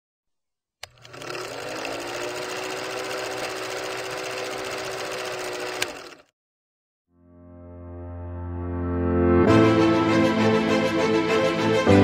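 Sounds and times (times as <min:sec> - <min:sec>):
film projector clattering: 0:00.8 - 0:06.3.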